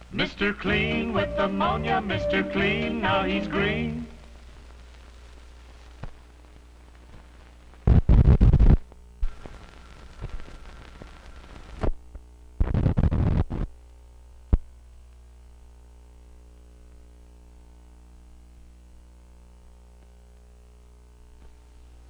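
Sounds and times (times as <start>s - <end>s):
film soundtrack hum: 0.0s - 5.6s.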